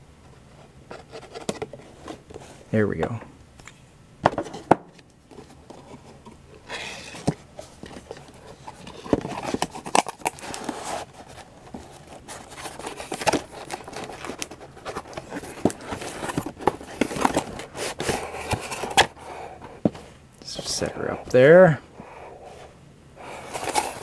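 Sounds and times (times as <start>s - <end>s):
cardboard box rustling and scraping: 5.3s - 20.1s, 22.5s - 24.0s.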